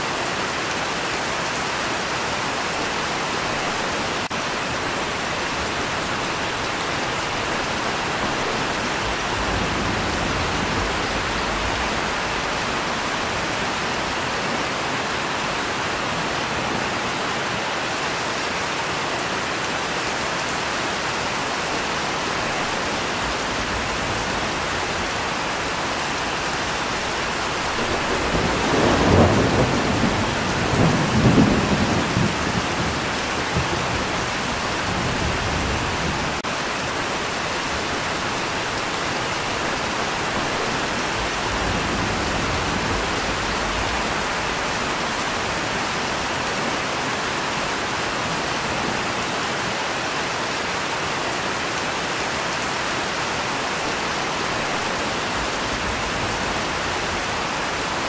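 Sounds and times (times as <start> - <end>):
steady rain: 0.0 - 58.0
thunder rumble: 5.2 - 14.3, 22.5 - 36.4.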